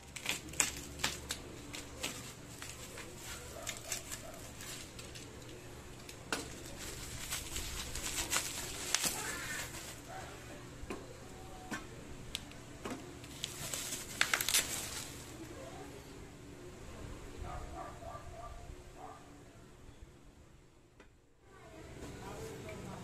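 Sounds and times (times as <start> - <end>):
bubble wrap crinkling and popping: 0.0 - 10.2, 13.2 - 15.4.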